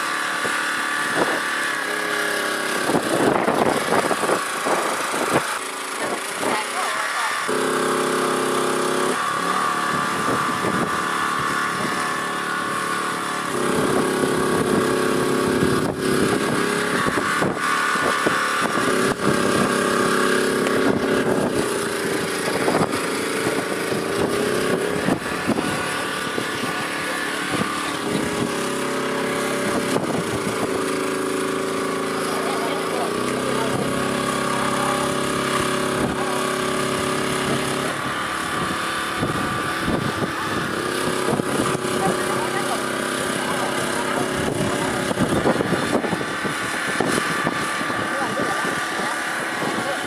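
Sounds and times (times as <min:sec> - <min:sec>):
small petrol engine running: 0:00.0 - 0:50.0.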